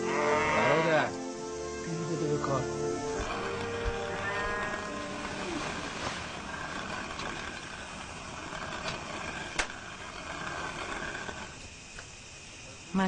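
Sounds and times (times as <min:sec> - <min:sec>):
stone quern grinding: 0:00.6 - 0:12.0.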